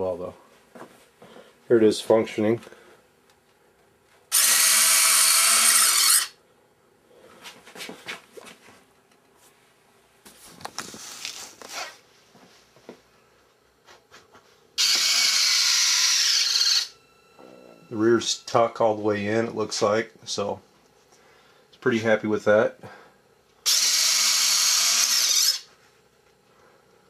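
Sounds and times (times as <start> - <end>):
retract motors whirring: 4.3 - 6.4, 14.8 - 18.6, 23.6 - 25.7.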